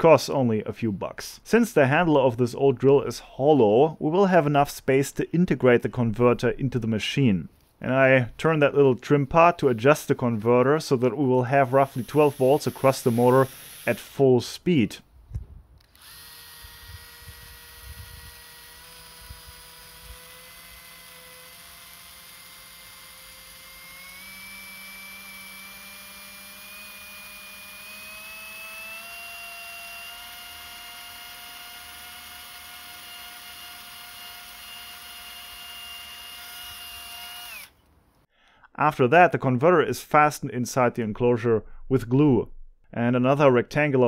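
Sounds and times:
drill motor whining: 0:11.5 - 0:14.2, 0:15.8 - 0:37.9.

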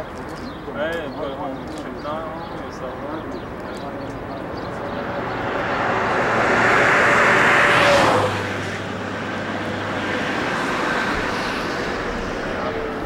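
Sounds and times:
car passing by: 0:04.2 - 0:13.0.

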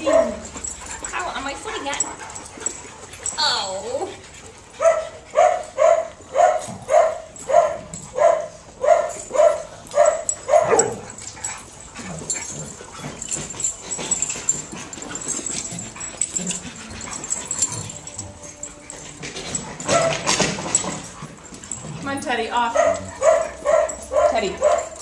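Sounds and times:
dog barking: 0:00.0 - 0:00.4, 0:04.8 - 0:11.1, 0:19.8 - 0:20.4, 0:22.8 - 0:25.0
dogs scuffling and clicking: 0:00.0 - 0:25.0.

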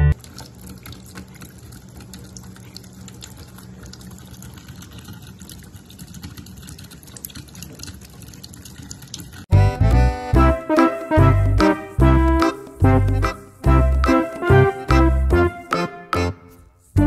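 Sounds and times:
cat lapping water: 0:00.1 - 0:09.5.

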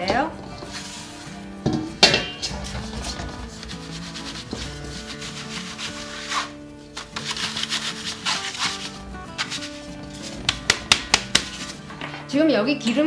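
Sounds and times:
flour rubbed through sieve mesh: 0:00.5 - 0:01.4, 0:02.5 - 0:10.6.

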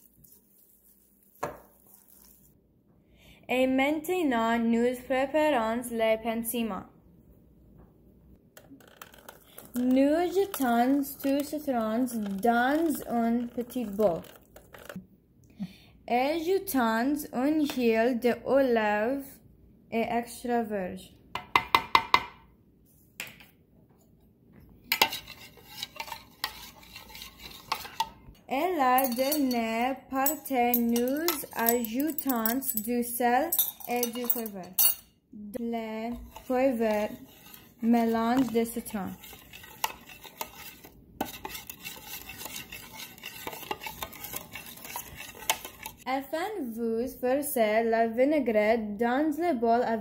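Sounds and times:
metal spoon stirring in plastic jug: 0:00.0 - 0:02.6, 0:08.6 - 0:15.0, 0:24.9 - 0:35.1, 0:36.0 - 0:46.1.

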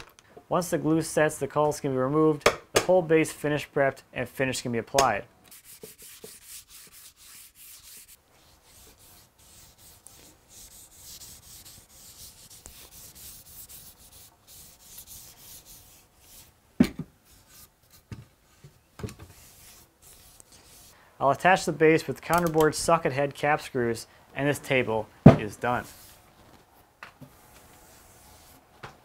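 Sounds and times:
rag wiping wood: 0:05.5 - 0:16.5
sandpaper rubbing on wood: 0:05.5 - 0:16.5, 0:19.3 - 0:21.0.

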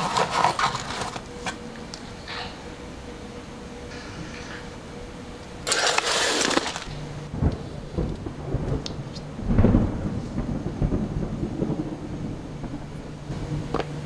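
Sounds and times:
steady low hum: 0:00.0 - 0:14.0
deep low rumble: 0:06.2 - 0:14.0.

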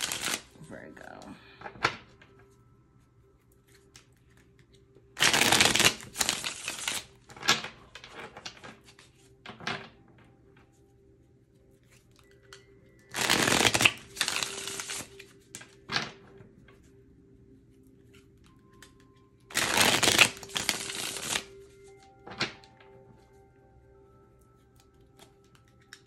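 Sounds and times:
cards being shuffled: 0:00.0 - 0:00.6, 0:03.5 - 0:10.0, 0:11.8 - 0:16.9, 0:18.0 - 0:22.8.

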